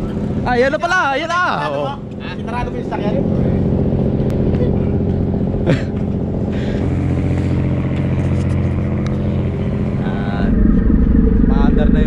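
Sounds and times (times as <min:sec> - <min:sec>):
ferry diesel engines droning: 0:00.0 - 0:12.0
short falling pitch sound: 0:10.0 - 0:12.0.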